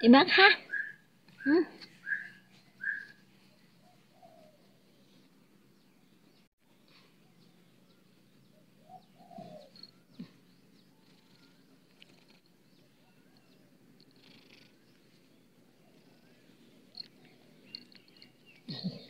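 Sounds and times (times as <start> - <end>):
faint bird chirps: 0.6 - 5.2, 5.9 - 19.0
cat purring: 9.4 - 19.0.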